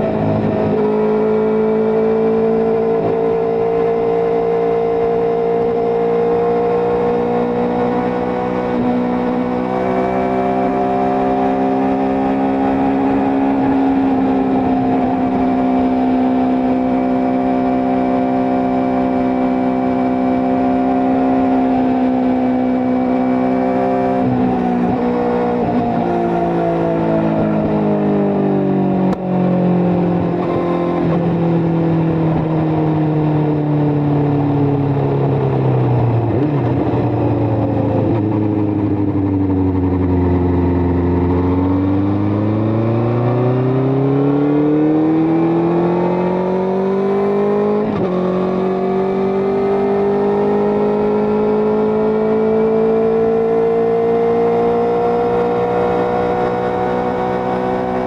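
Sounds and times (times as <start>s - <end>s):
motorcycle engine running: 0.0s - 44.4s.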